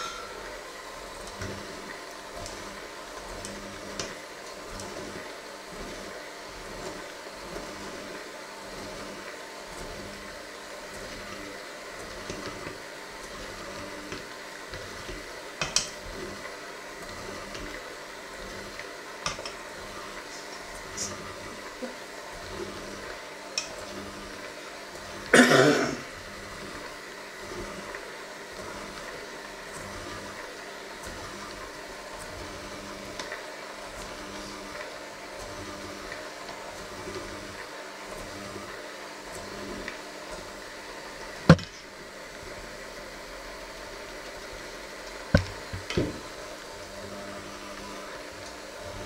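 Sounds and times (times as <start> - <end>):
electric hand mixer running: 0.0 - 49.0
loud cough: 25.3 - 26.0.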